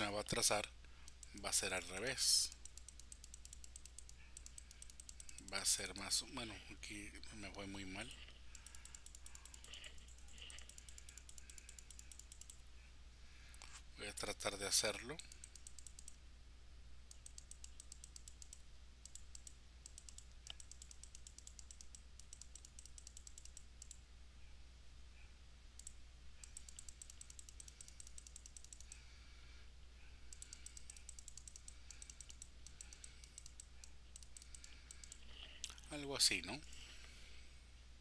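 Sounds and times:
computer mouse clicking: 0.0 - 6.5, 7.4 - 12.7, 14.4 - 16.2, 17.1 - 24.0, 25.8 - 29.0, 30.3 - 35.9
low steady hum: 0.0 - 38.0.

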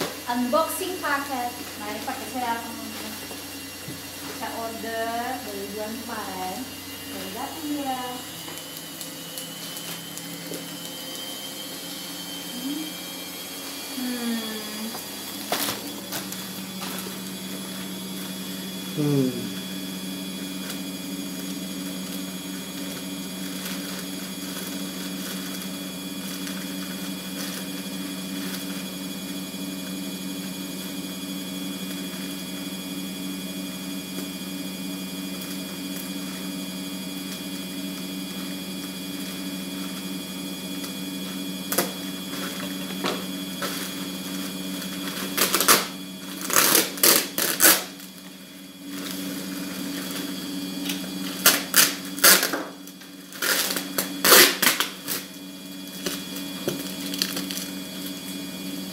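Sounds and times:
plastic film crinkling: 22.8 - 28.8, 41.7 - 50.3, 51.2 - 58.2
scissors cutting plastic bag: 45.0 - 48.1, 50.0 - 55.3, 55.9 - 58.2.

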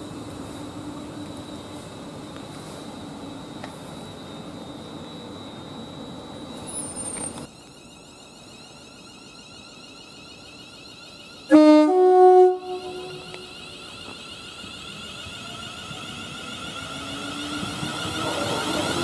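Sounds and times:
passing train rumble: 0.0 - 7.5, 11.3 - 19.0
two-tone train horn: 11.5 - 13.5.

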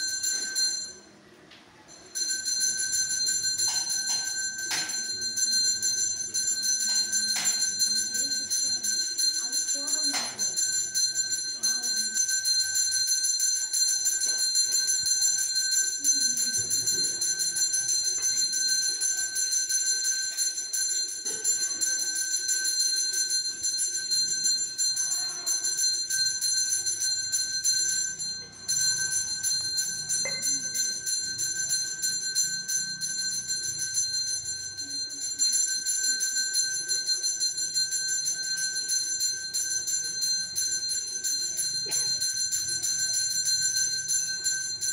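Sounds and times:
temple bell ringing: 0.0 - 1.2, 1.8 - 44.9.

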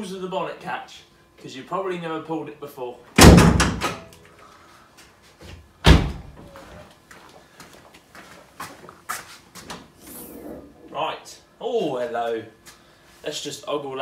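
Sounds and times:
heavy car body thunk: 3.2 - 3.8, 5.8 - 6.4.

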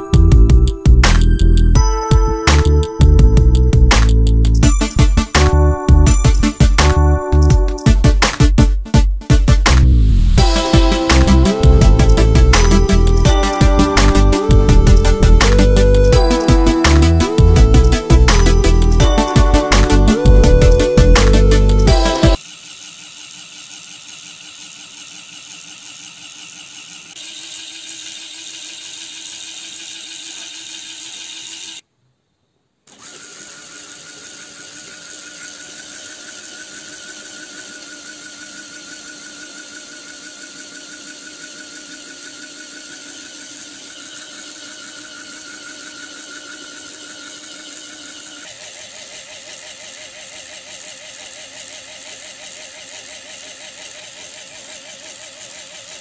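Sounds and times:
small geared motor whirring: 9.6 - 31.8, 32.9 - 56.0.

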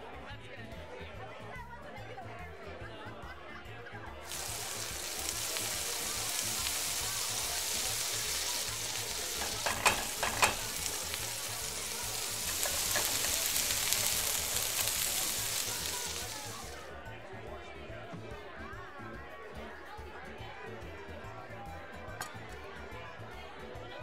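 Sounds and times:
pasta sauce sizzling in a pan: 4.2 - 16.9.

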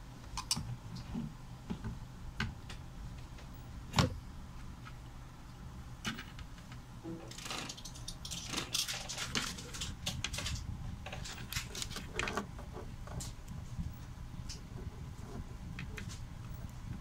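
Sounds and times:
steady low hum: 0.0 - 17.0
handling clicks and rustles: 6.0 - 17.0.

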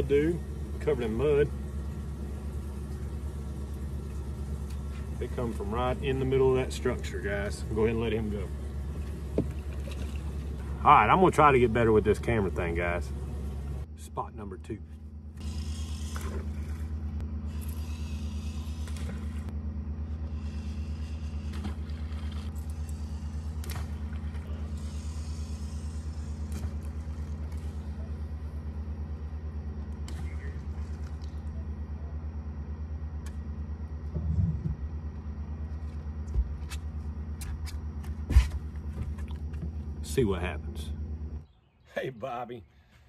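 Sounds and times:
motor humming with fast pulse: 0.0 - 13.9, 14.9 - 40.0
loud thump: 34.1 - 34.8.

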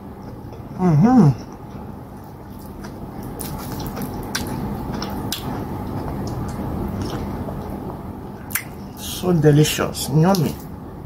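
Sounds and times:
sharp wet clicks: 8.5 - 8.8.

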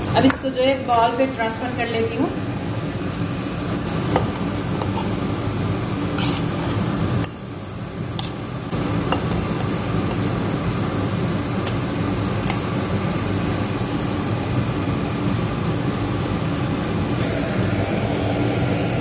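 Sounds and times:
electric motor hum: 16.8 - 19.0.

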